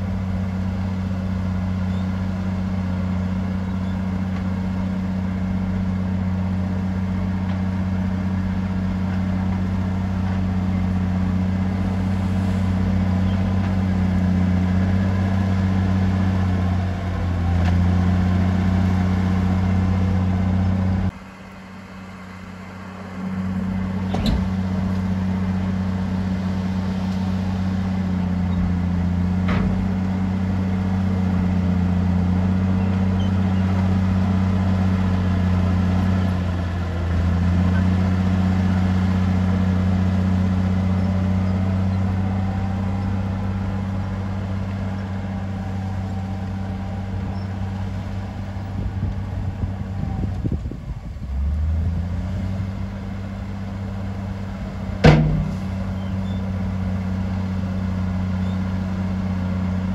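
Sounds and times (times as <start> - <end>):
heavy diesel engine droning: 0.0 - 59.9
sharp knocks: 55.0 - 55.8.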